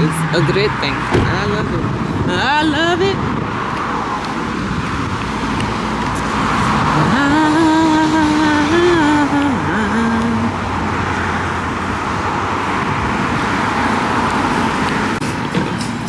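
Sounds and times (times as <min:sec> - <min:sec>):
car road and engine noise: 0:00.0 - 0:16.0.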